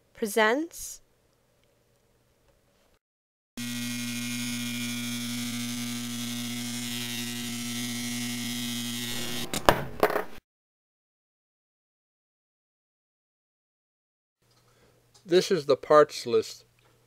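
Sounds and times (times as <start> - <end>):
electromagnet coil humming: 3.6 - 9.7.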